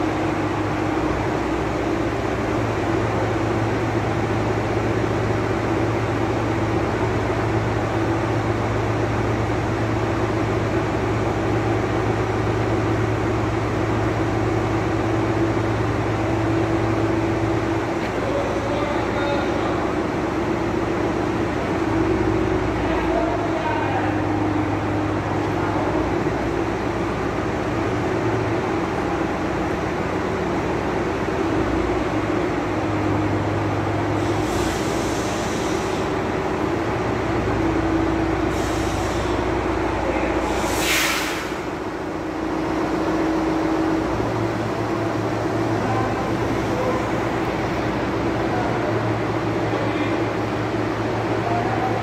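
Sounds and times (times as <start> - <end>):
crane engine humming: 0.0 - 52.0
short hisses: 34.2 - 36.1, 38.5 - 39.4, 40.4 - 41.8.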